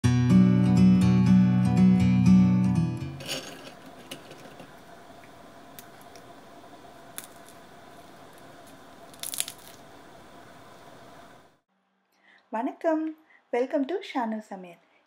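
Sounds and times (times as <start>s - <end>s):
faint steady hiss: 3.1s - 15.0s
crunchy snacks crackling in hand: 7.0s - 10.0s.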